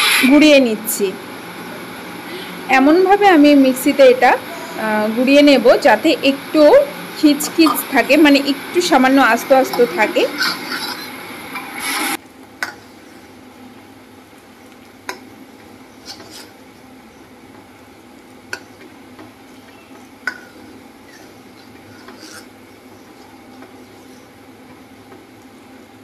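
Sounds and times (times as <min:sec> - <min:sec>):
simmering milk hissing: 0:01.4 - 0:12.2.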